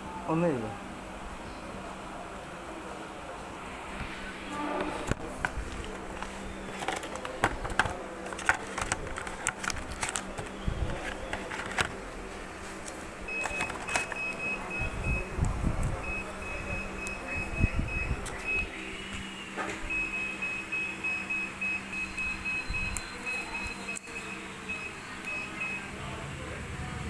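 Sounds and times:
low electrical hum: 0.0 - 27.0
high electronic beeps: 19.9 - 25.9.

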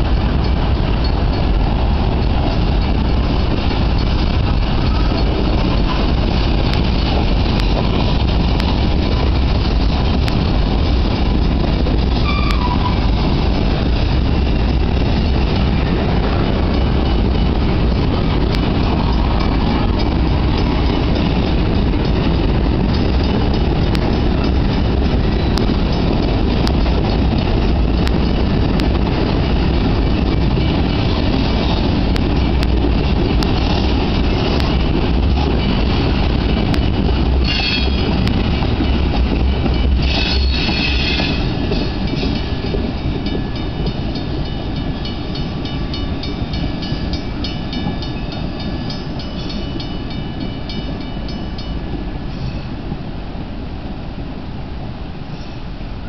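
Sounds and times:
freight train rumbling past: 0.0 - 56.0
high wheel squeals: 12.2 - 13.2, 37.4 - 38.2, 39.5 - 41.7.

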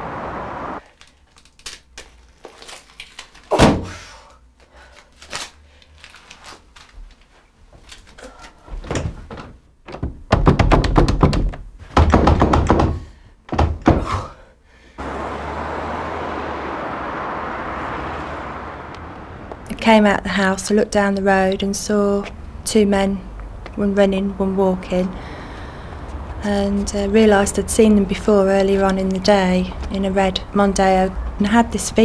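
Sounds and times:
door thumping and rattling: 8.8 - 14.1.

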